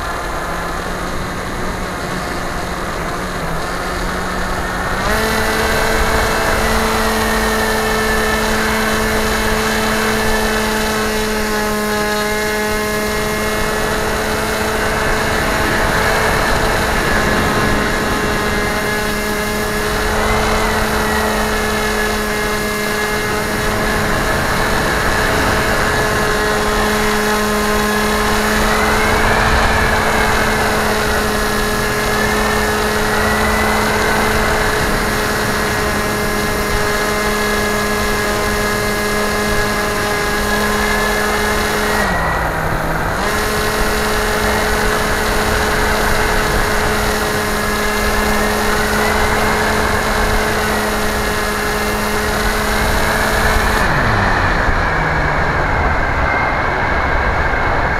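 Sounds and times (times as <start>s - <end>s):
model aircraft motor whine: 0.0s - 57.9s
wind rush: 12.8s - 57.9s.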